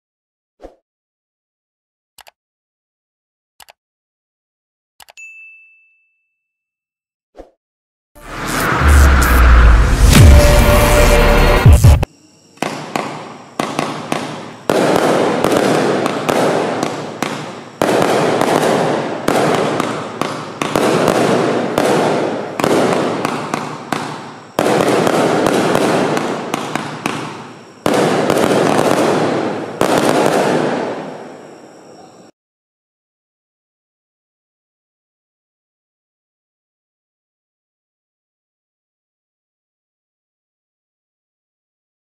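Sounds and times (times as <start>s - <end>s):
firework shots: 8.3s - 31.7s.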